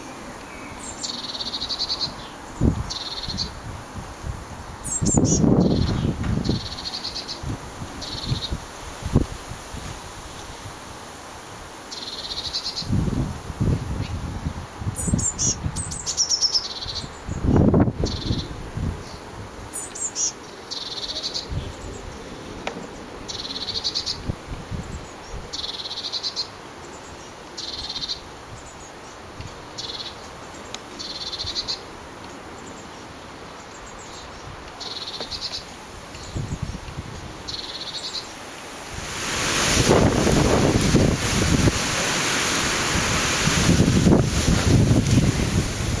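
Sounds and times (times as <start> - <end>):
bird chicks trilling calls: 0.0 - 3.6
wind on microphone: 2.0 - 10.8, 12.7 - 16.2, 16.8 - 19.7, 21.4 - 25.6, 36.0 - 37.6, 38.8 - 46.0.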